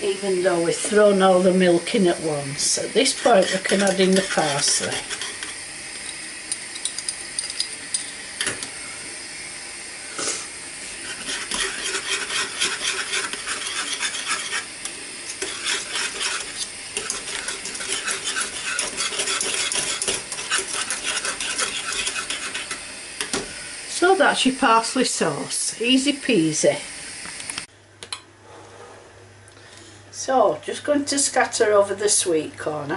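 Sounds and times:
whisk clinking against pan: 3.0s - 6.2s, 11.0s - 14.7s, 15.3s - 22.8s.

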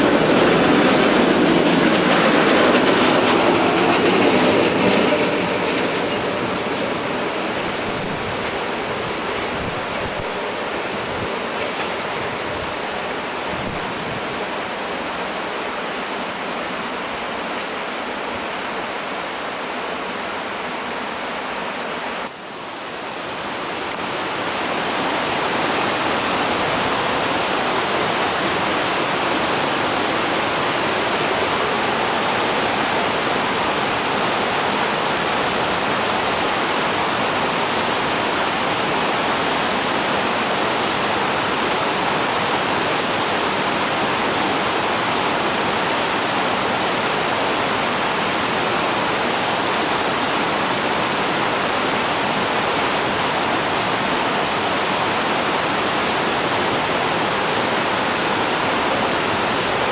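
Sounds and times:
river rushing over rocks: 0.0s - 59.9s.

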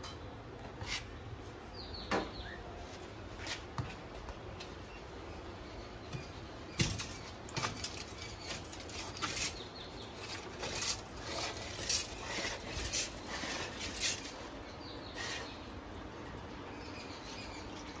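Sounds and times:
metal rod grating on concrete: 7.8s - 15.6s.

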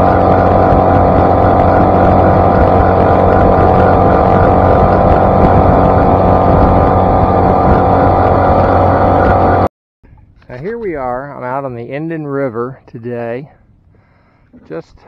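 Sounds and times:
outboard motor running at speed: 0.0s - 9.7s
water rushing off boat hull: 0.0s - 9.7s.

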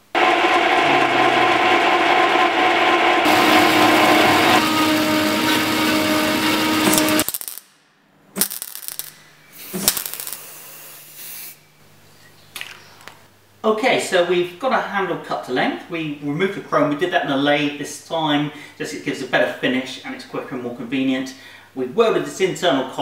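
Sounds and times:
low hum: 0.0s - 7.3s
band saw grinding metal: 0.2s - 7.3s.

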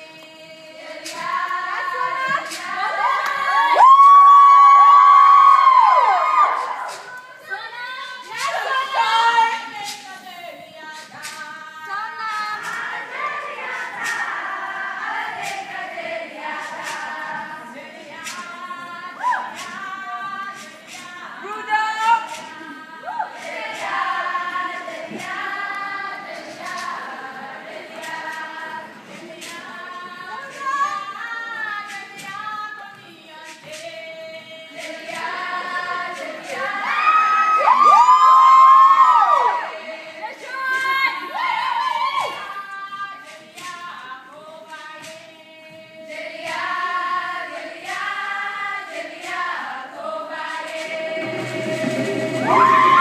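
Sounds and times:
crowd noise: 0.0s - 44.3s, 44.9s - 53.0s
sharp rhythmic clapping: 0.0s - 53.0s
women singing in unison: 0.0s - 53.0s
sharp percussive hits: 50.6s - 53.0s.

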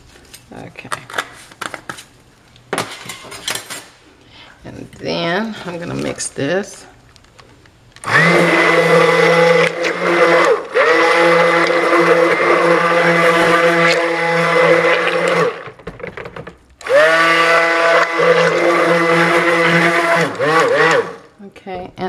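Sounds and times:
stick blender motor: 8.0s - 15.8s, 16.8s - 21.3s.

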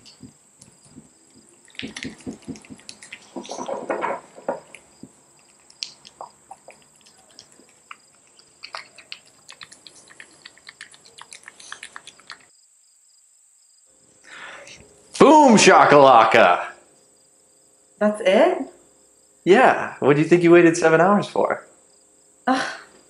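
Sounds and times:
handling rustles: 0.0s - 5.2s.

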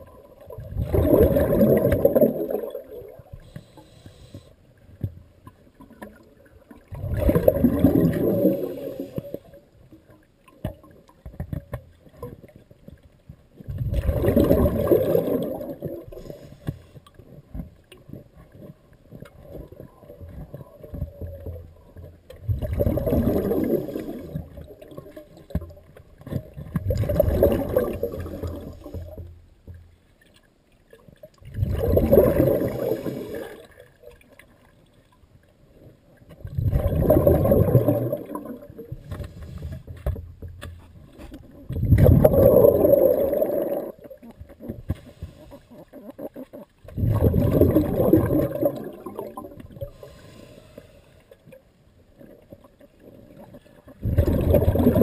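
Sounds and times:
underwater exhaled bubbles rushing: 0.0s - 4.3s, 5.8s - 9.6s, 13.7s - 16.6s, 19.3s - 29.2s, 31.4s - 34.4s, 36.3s - 40.0s, 41.0s - 50.5s, 52.2s - 55.0s
diver breathing: 49.8s - 51.3s.

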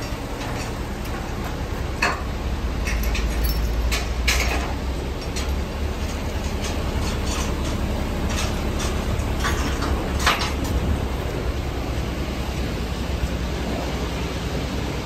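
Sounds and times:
diesel engine idling: 0.0s - 15.0s
light metallic clinks: 2.8s - 6.2s.

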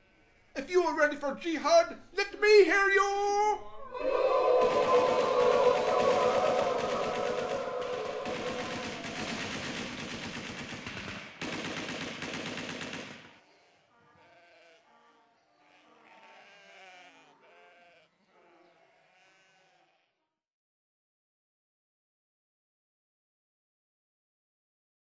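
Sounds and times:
rapid automatic gunfire: 4.7s - 13.4s
sheep bleating faintly: 13.4s - 20.2s.

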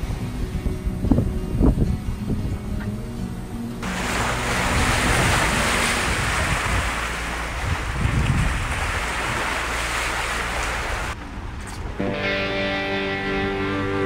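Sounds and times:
wind and sea rushing: 0.0s - 2.8s, 3.5s - 12.0s
wind buffeting microphone: 0.0s - 12.0s.

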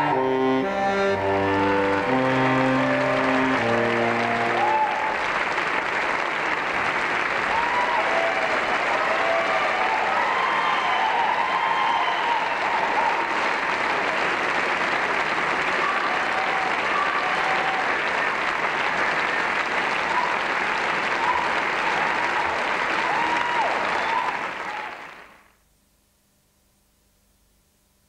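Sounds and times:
audience applauding: 0.0s - 25.5s.

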